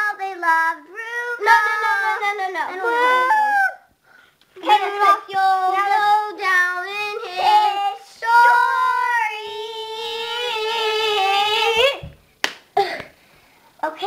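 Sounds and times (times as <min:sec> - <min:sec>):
young child singing: 0:00.0 - 0:03.9, 0:04.6 - 0:12.2, 0:13.8 - 0:14.0.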